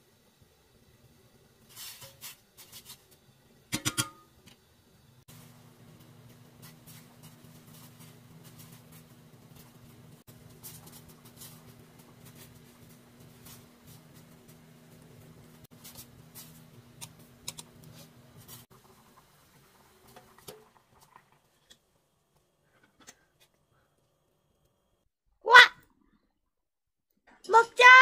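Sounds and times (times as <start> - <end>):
tableware clicks and taps: 3.7 - 4.2.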